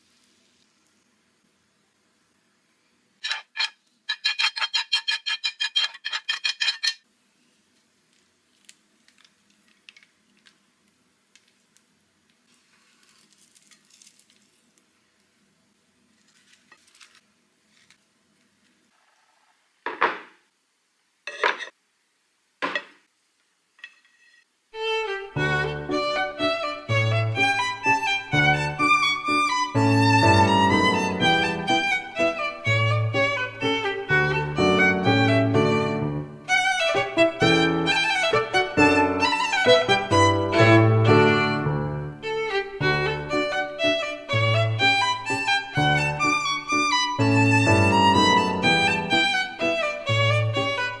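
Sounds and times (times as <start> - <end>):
soft handling noises: 7.5 - 15.4, 16.0 - 18.8
knocks: 19.8 - 20.4.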